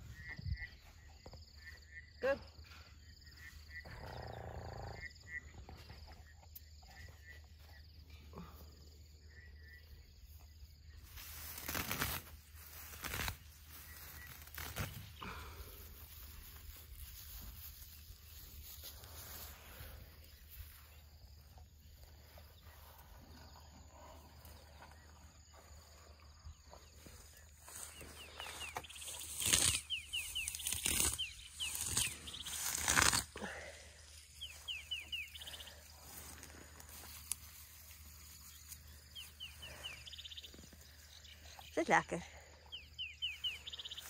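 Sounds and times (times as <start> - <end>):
elephant tearing and munching grass: 11.2 - 15.3, 28.3 - 33.4.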